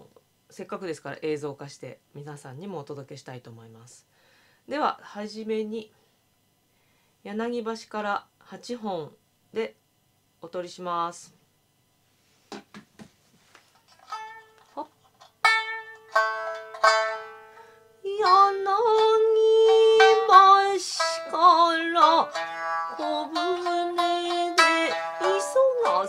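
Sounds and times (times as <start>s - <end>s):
shamisen plucked notes: 14.1s - 14.7s, 15.4s - 26.0s
woman singing: 18.0s - 26.0s.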